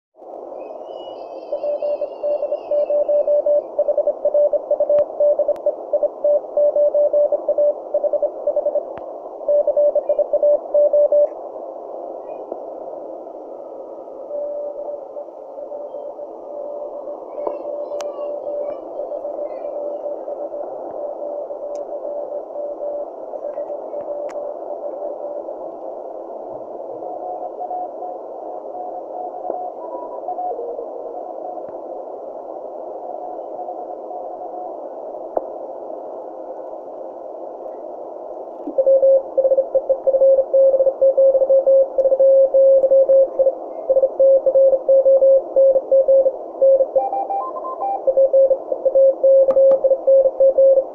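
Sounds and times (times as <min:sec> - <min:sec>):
radio band hiss: 0:00.2 - 0:50.9
morse code tones: 0:01.5 - 0:08.8, 0:09.5 - 0:11.3, 0:38.8 - 0:50.9.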